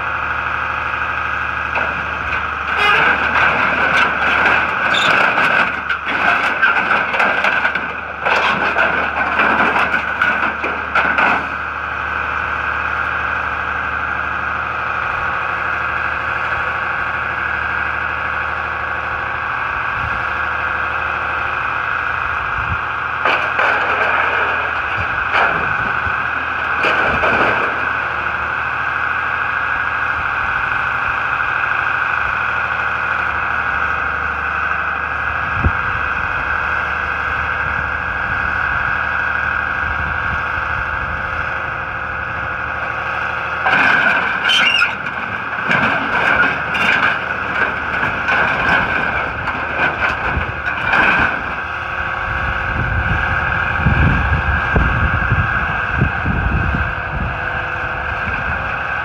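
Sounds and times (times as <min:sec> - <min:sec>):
deep engine rumble: 0:00.0 - 0:59.0
hydraulic whine: 0:00.0 - 0:59.0
scrap metal clanking: 0:01.7 - 0:11.6, 0:23.2 - 0:28.4, 0:43.6 - 0:51.7.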